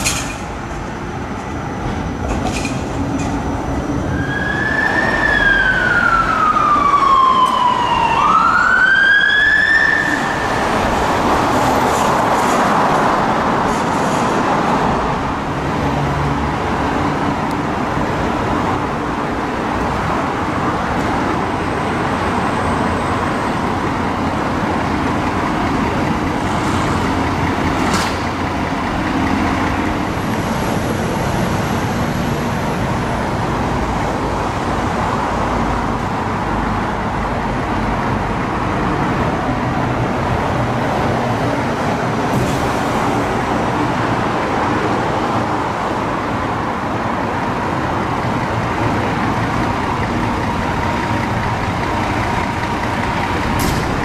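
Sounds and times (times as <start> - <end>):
city traffic noise: 0.0 - 54.0
ambulance siren: 4.0 - 11.2.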